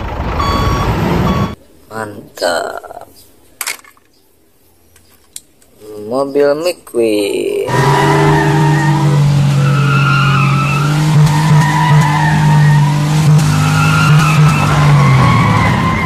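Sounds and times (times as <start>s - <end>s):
car engine at high revs: 7.7s - 16.0s
tyres squealing: 7.7s - 16.0s.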